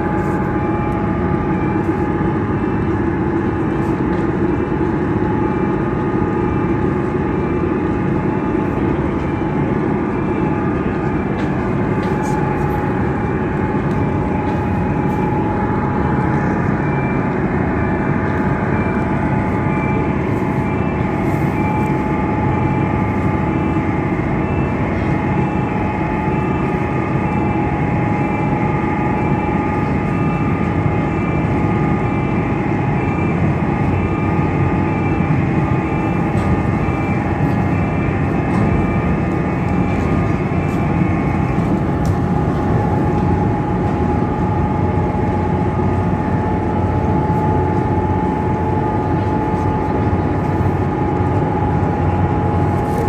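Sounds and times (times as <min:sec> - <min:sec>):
ship engines rumbling: 0:00.0 - 0:53.0.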